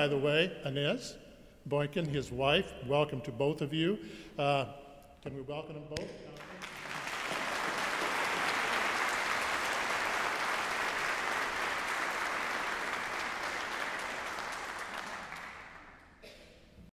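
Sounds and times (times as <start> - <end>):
audience applause: 6.4 - 16.2.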